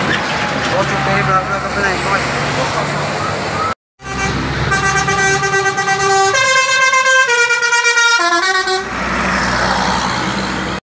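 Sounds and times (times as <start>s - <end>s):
bus driving past: 0.0s - 10.8s
bus horn playing a tune: 4.0s - 9.0s.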